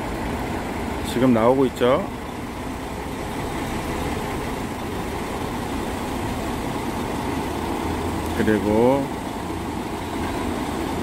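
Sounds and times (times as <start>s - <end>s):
truck diesel engine running: 0.0s - 11.0s.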